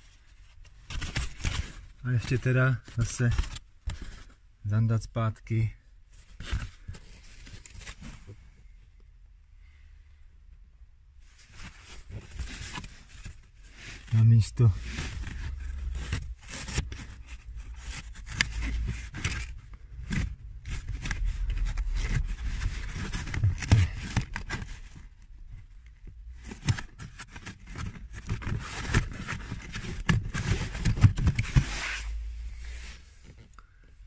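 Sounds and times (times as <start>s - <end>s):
felt panel scraping against trim: 28.4s - 33.4s.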